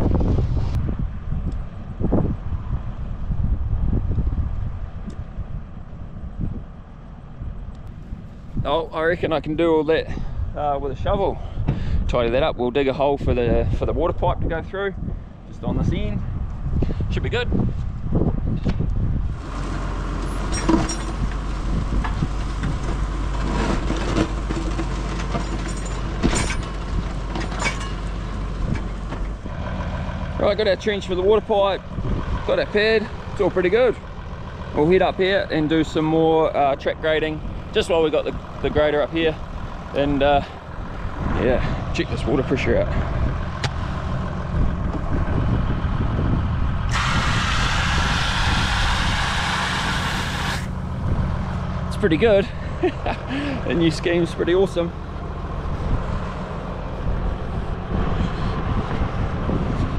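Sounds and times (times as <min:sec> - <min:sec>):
steady low rumble: 0:00.0 - 0:59.9
tractor engine under load: 0:18.6 - 0:59.9
water jetting from a pipe: 0:46.9 - 0:50.7.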